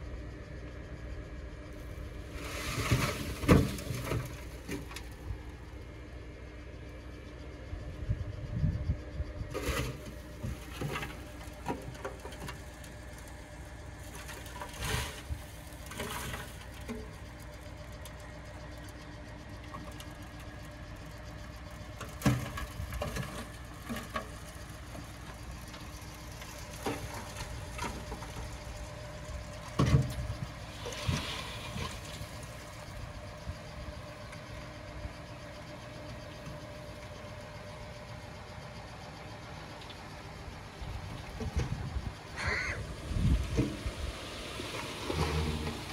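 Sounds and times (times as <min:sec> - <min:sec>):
diesel engine running: 0:00.0 - 0:45.9
sharp clanks and thumps: 0:02.4 - 0:05.2, 0:09.6 - 0:13.3, 0:21.8 - 0:28.8, 0:29.5 - 0:32.3.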